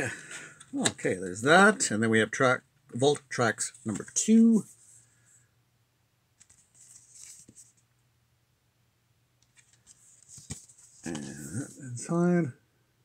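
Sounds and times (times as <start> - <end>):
cardboard sleeve rustling: 6.4 - 7.8, 9.5 - 11.9.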